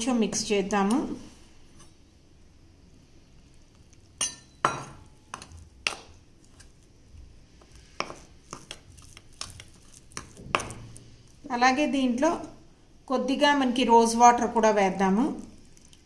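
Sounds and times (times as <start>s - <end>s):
spoon clinking against a bowl: 4.2s - 5.6s.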